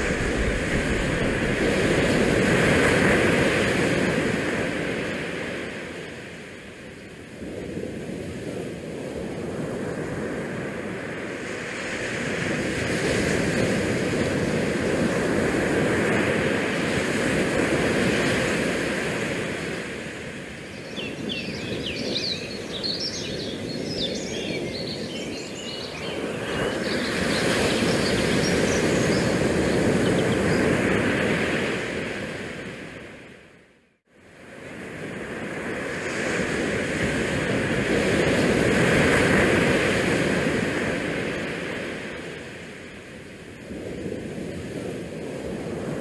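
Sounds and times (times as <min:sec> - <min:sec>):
wind rushing over microphone: 0:00.0 - 0:33.6, 0:34.2 - 0:46.0
small birds chirping: 0:20.6 - 0:30.8.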